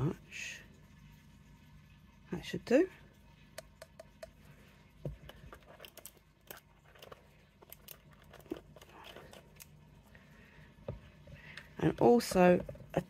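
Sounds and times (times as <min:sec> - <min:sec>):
plastic jar clicks and taps: 0:03.6 - 0:04.4.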